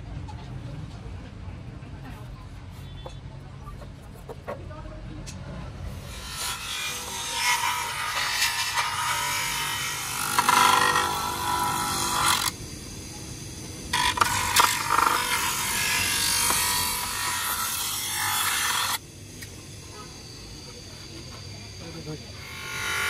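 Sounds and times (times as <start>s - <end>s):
plastic grinding on bench grinder: 7.0s - 12.6s, 13.9s - 19.0s.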